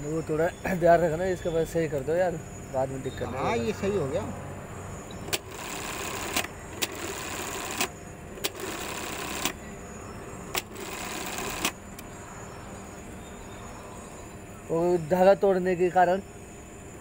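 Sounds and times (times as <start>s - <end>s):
sewing machine stitching: 5.3s - 9.6s.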